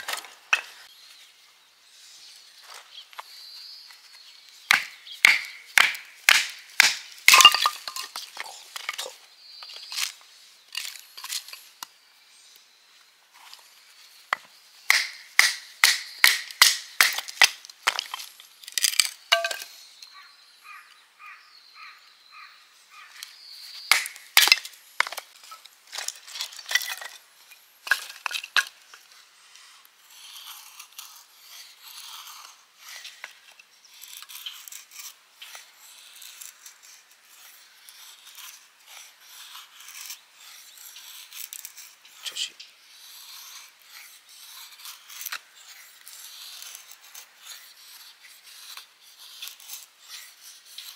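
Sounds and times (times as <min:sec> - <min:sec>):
knife shaving wood scrapes: 0:29.0 - 0:50.9.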